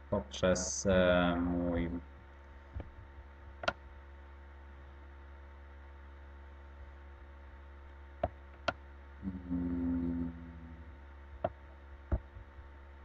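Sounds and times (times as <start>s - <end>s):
electrical mains hum: 0.0s - 13.0s
computer mouse clicks: 3.6s - 3.8s.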